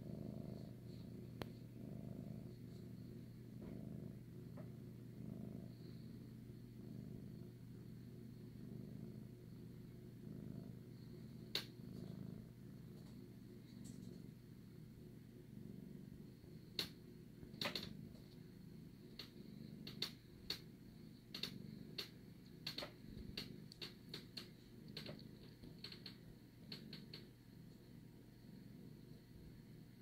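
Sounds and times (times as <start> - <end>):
cat purring: 0.0 - 30.0
sharp clicks: 16.8 - 17.9, 19.2 - 20.7, 21.3 - 27.3.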